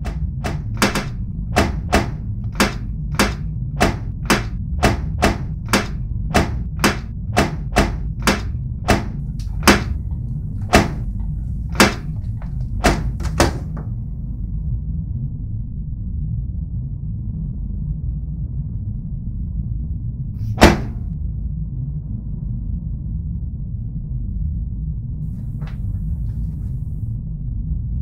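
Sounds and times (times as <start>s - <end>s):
sharp knocks: 0.0s - 13.9s, 20.5s - 21.1s
low droning rumble: 0.0s - 24.6s.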